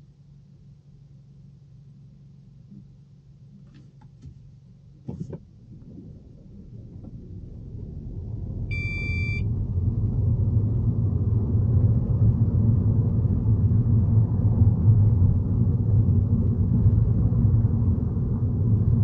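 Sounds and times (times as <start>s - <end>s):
car road and engine rumble: 0.0s - 19.0s
electronic beep: 8.7s - 9.5s.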